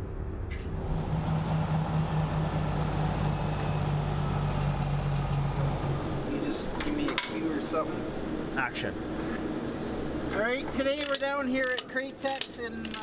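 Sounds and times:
diesel truck engine droning: 0.0 - 11.5.

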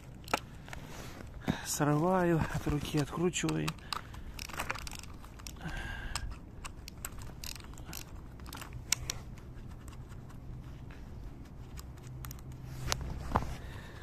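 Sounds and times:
metal clicks from bracket: 2.8 - 9.3
ratchet wrench clicking: 3.4 - 9.2.

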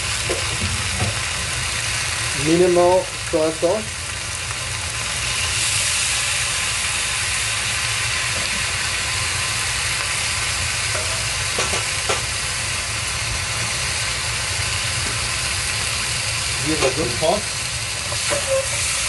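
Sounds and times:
food sizzling in a wok: 0.0 - 19.0.

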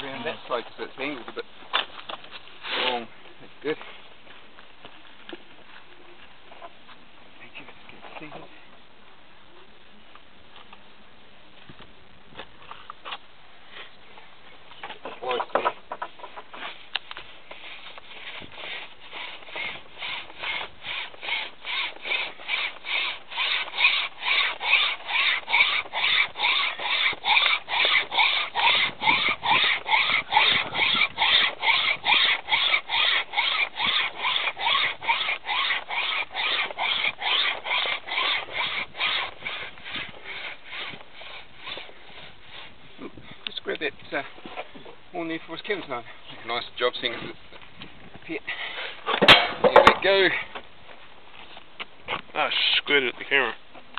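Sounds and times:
wire saw rasping through horn: 17.6 - 42.7.

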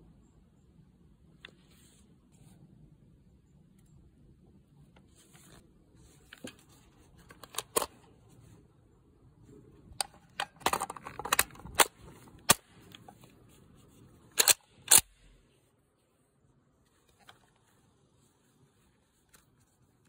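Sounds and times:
rifle metal clicks and clacks: 10.0 - 13.1, 14.4 - 15.1.

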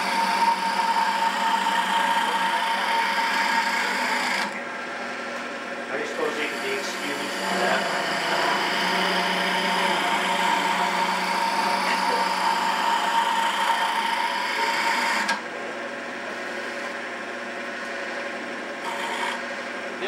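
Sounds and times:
turning tool scraping wood: 0.0 - 15.4, 16.3 - 17.0, 18.8 - 19.7
lathe whine: 0.0 - 20.0.

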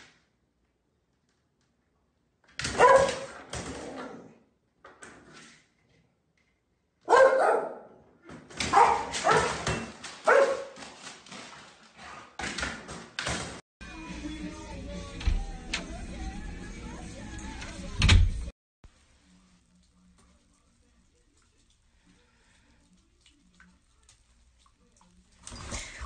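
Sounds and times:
dog barking: 2.7 - 3.3, 7.0 - 8.0, 8.6 - 9.6, 10.2 - 10.8.

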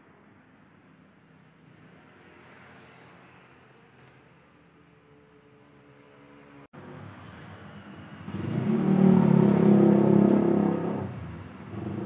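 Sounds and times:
car engine idling and revving: 5.9 - 12.0.

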